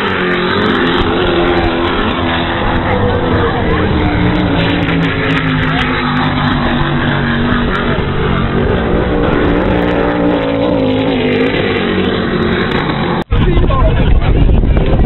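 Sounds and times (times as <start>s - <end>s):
powerboat engines running: 0.0s - 15.0s.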